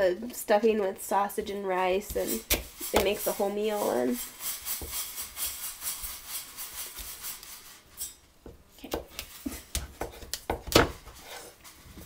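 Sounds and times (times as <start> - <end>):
knife scraping through squash: 2.0 - 8.2, 11.0 - 12.0.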